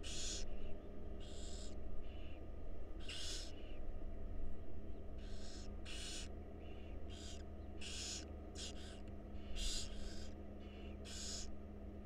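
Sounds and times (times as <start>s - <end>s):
owl chicks raspy hisses: 0.0s - 0.5s, 3.0s - 3.6s, 5.2s - 11.5s
steady low hum: 0.0s - 12.0s.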